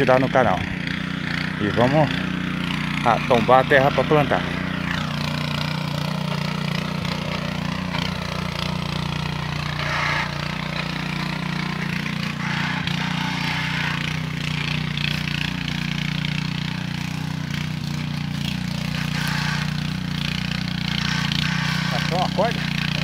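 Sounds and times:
tiller engine running: 0:00.0 - 0:23.0.

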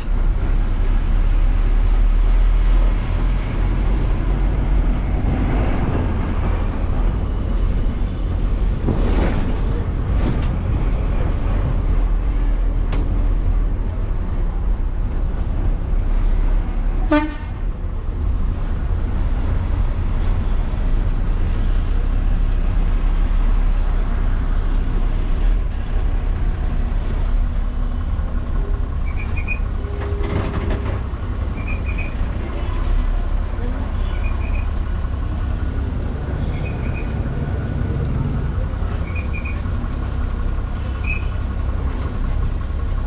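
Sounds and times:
bus engine rumble: 0:00.0 - 0:43.0
bus horn toot: 0:17.0 - 0:17.7.

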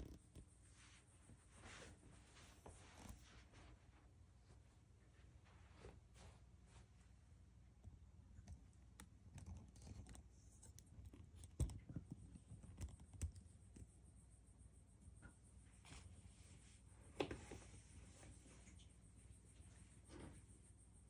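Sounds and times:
faint clicks and taps: 0:07.8 - 0:14.0.

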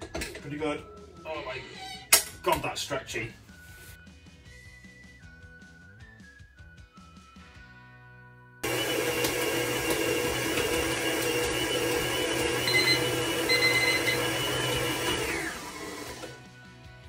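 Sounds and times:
stand mixer motor humming: 0:08.6 - 0:16.4.

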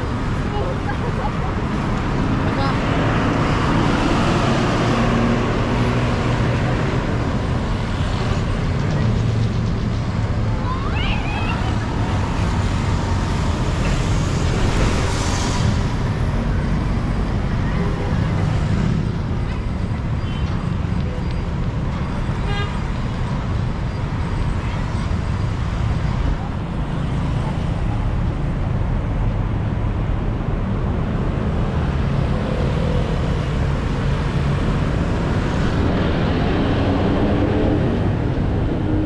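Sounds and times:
road traffic passing: 0:00.0 - 0:39.0.

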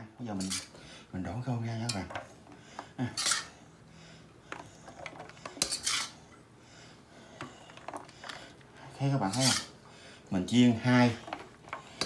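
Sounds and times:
metal spatula scraping a wok: 0:00.3 - 0:00.7, 0:03.2 - 0:03.6, 0:05.5 - 0:06.2, 0:09.2 - 0:09.8.

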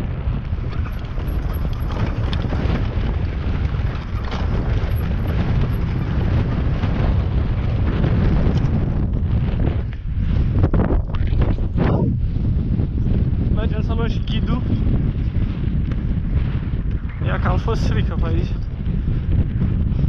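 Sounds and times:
atv engine running: 0:00.0 - 0:10.7
wind buffeting microphone: 0:00.0 - 0:20.0.

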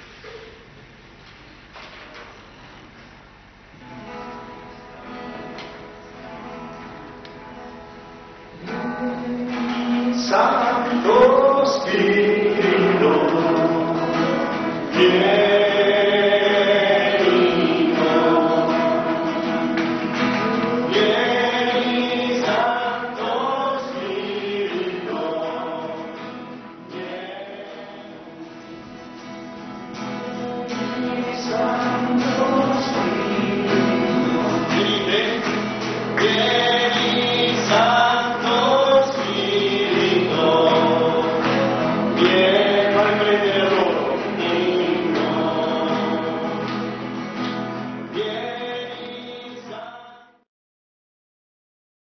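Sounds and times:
group of voices singing a hymn: 0:08.6 - 0:29.3, 0:30.0 - 0:47.4, 0:48.1 - 0:50.4.

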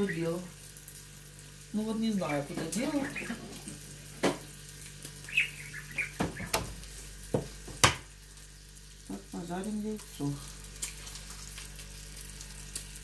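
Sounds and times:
parakeet chirping: 0:00.0 - 0:00.4, 0:02.2 - 0:03.8, 0:05.2 - 0:06.7
sausages sizzling on a grill: 0:00.0 - 0:13.0.

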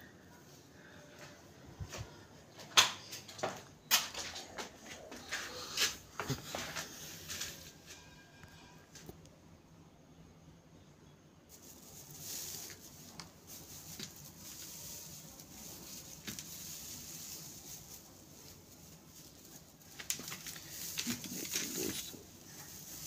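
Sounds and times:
dry grass rustling and crackling: 0:06.0 - 0:09.2, 0:11.5 - 0:23.0.

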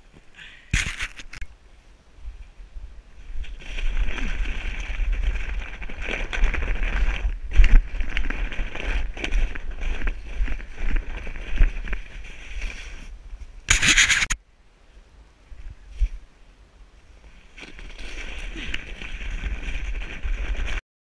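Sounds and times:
sled scraping over snow: 0:03.2 - 0:14.4, 0:17.4 - 0:20.8.

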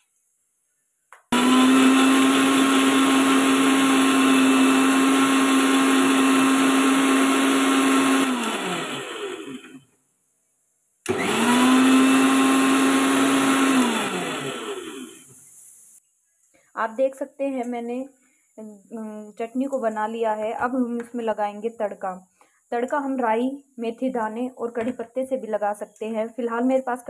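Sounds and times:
mixer grinder motor whine: 0:01.2 - 0:09.8, 0:11.1 - 0:15.3.

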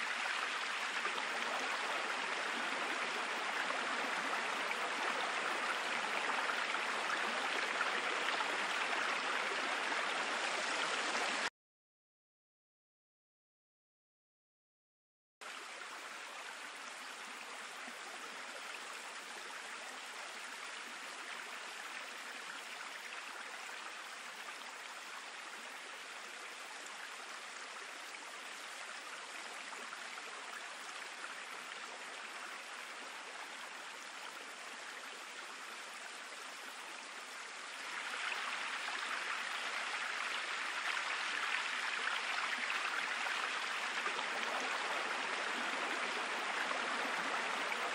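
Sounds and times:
synthetic flowing water: 0:15.4 - 0:47.9.

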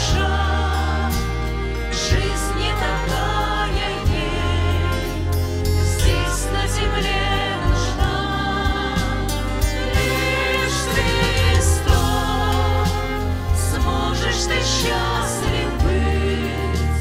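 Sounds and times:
vocal group singing: 0:00.0 - 0:17.0
worship band playing slow song: 0:00.0 - 0:17.0.

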